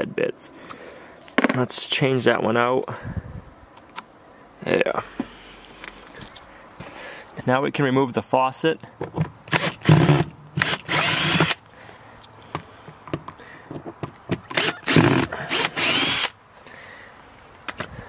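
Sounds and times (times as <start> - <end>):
cordless drill whining: 9.5 - 11.6, 14.5 - 16.3.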